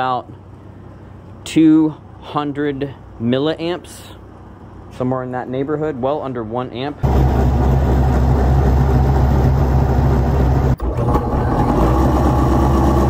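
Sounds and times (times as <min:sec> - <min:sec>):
electric motor humming: 0:07.0 - 0:13.0.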